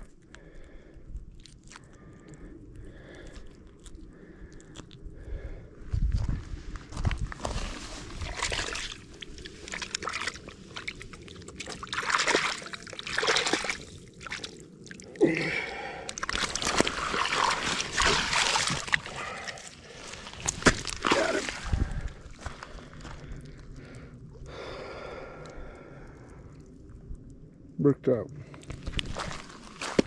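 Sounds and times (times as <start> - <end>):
lake water splashing and sloshing: 7.4 - 15.2, 15.8 - 23.0, 28.6 - 30.0.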